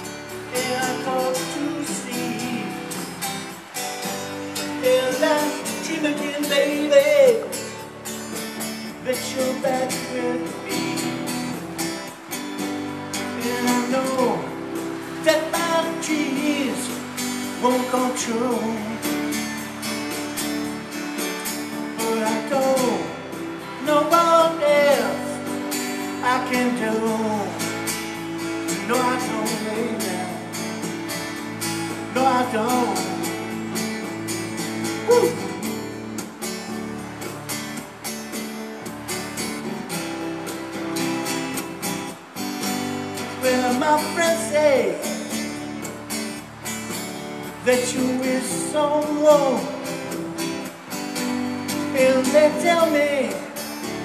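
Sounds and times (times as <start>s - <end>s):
strummed acoustic guitar: 0.0s - 54.0s
man singing: 0.2s - 3.2s, 4.6s - 7.9s, 8.9s - 11.3s, 13.2s - 19.4s, 21.9s - 27.9s, 28.6s - 31.0s, 31.9s - 33.8s, 34.9s - 35.9s, 43.3s - 45.4s, 47.6s - 50.0s, 51.8s - 53.6s.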